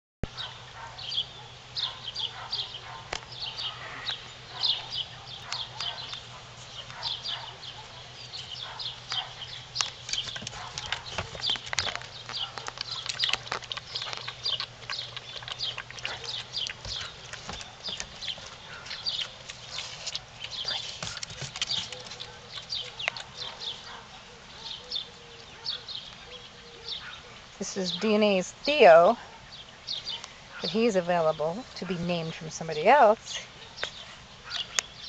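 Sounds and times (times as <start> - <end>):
puppies chirping: 0.2 - 32.2, 32.8 - 35.0
paws tapping on wooden boards: 8.6 - 23.8.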